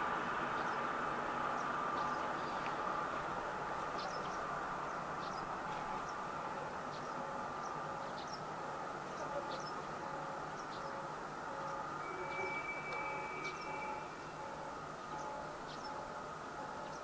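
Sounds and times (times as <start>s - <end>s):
distant diesel train hum: 0.0s - 17.0s
small birds chirping: 3.9s - 17.0s
thin high tone: 9.2s - 17.0s
faint ding: 11.7s - 15.4s.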